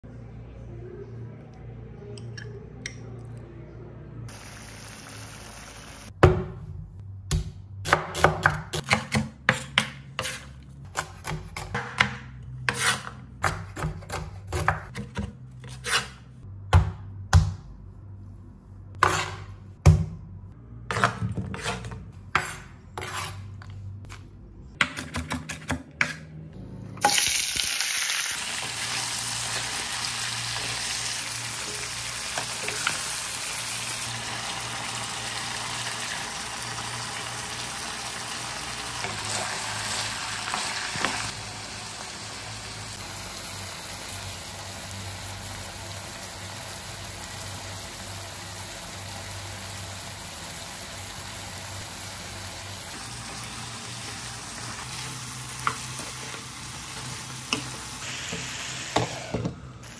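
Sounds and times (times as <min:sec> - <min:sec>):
hot oil sizzling: 0:04.3 - 0:06.2, 0:27.0 - 0:59.9.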